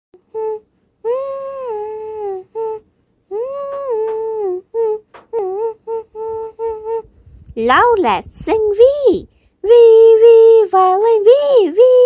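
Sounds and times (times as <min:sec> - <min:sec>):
high voice humming a tune: 0:00.2 - 0:12.0.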